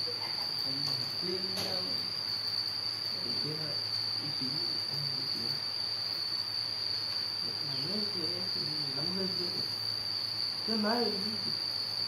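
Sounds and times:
high-pitched insect call: 0.0 - 12.0.

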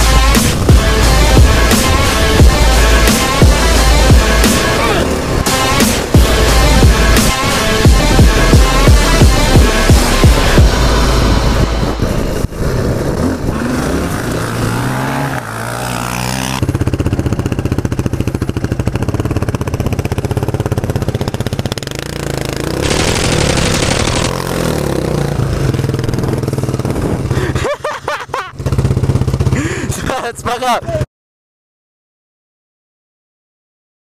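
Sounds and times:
dirt bike engine revving: 0.0 - 30.0
quad engine pulsing in mud: 0.0 - 31.1
hissing mud spray: 22.6 - 24.8.

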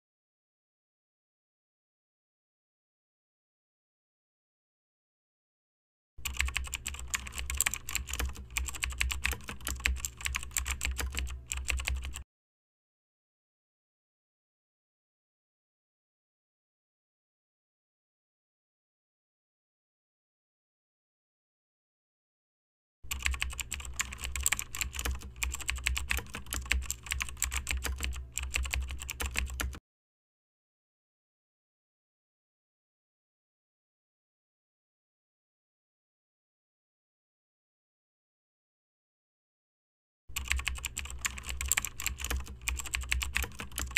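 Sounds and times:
rapid keyboard typing: 6.2 - 12.2, 23.1 - 29.8, 40.3 - 43.9.

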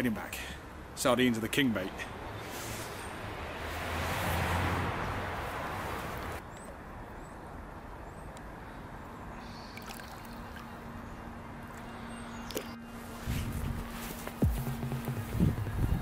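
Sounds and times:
water sloshing and splashing: 9.8 - 10.9.

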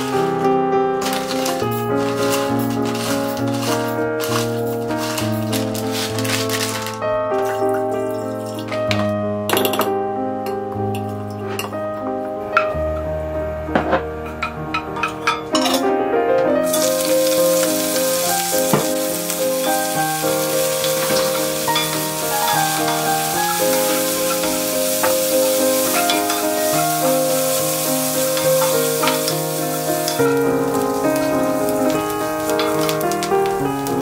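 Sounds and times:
gentle background music: 0.0 - 34.0
seaweed sizzling in oil: 1.0 - 8.6, 16.7 - 34.0.

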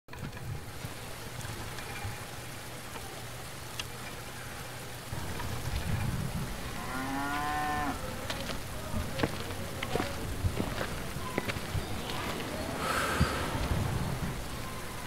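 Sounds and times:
outdoor ambience hiss: 0.1 - 15.0
cow mooing: 6.7 - 8.2.

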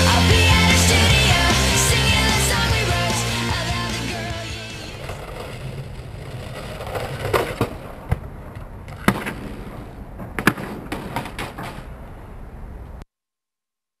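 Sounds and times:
skateboard wheels rolling on concrete: 0.0 - 13.0
skateboard clacks and knocks: 4.9 - 11.9.

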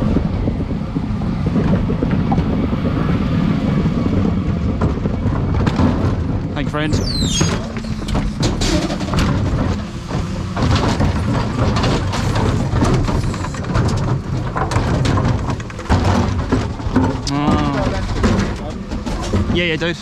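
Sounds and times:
truck engine and hydraulics hum: 0.0 - 20.0
plastic bins knocking: 4.7 - 20.0
short falling squeal: 7.0 - 8.0.

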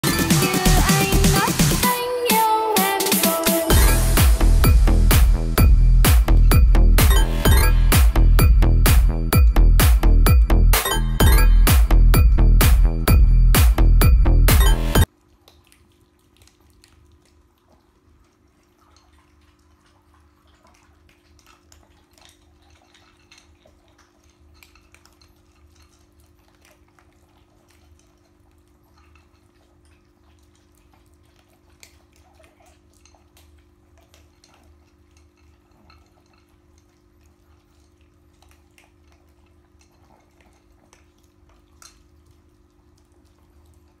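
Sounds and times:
steady low hum: 3.7 - 15.1
dog food crunching in bowl: 15.2 - 44.0.

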